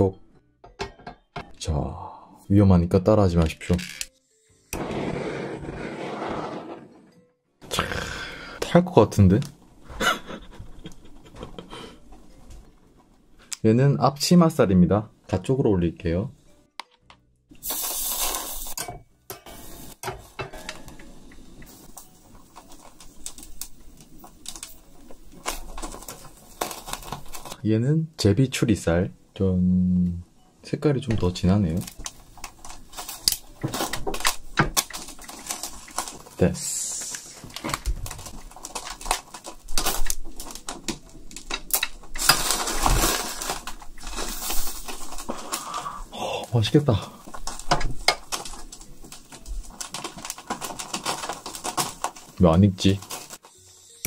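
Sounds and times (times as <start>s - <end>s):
meat sizzling on a grill: 17.6s - 18.8s.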